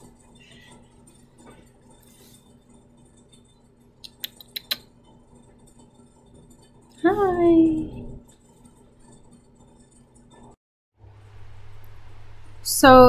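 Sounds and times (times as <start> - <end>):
steady low hum: 0.0 - 13.0
small sharp clicks: 4.0 - 4.9.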